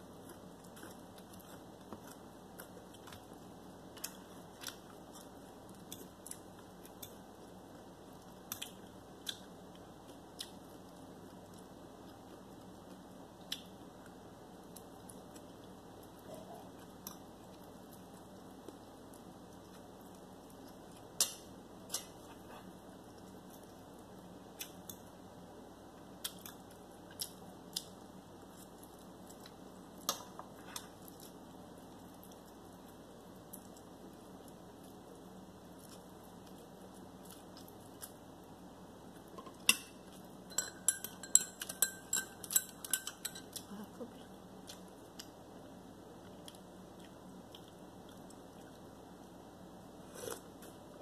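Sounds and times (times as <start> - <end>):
fork clinking on ceramic plate: 40.5 - 43.6
tableware clicking and clinking: 40.5 - 43.6.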